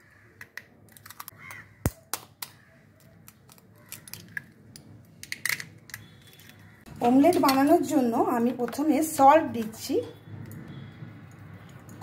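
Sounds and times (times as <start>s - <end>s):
spoon cracking eggshell: 3.2s - 6.6s.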